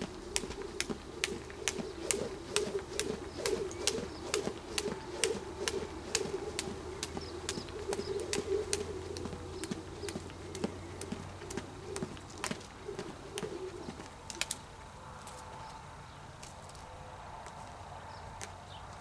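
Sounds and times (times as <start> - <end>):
doves cooing: 0.0 - 14.5
jump rope ticking on dirt: 0.0 - 15.7.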